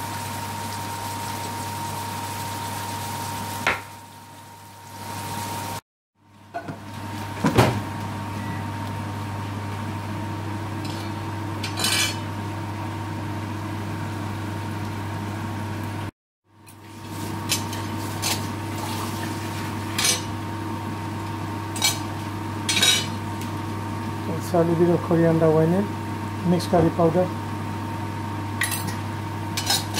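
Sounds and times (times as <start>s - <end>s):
onions frying in oil: 0.0s - 5.8s, 16.7s - 24.0s.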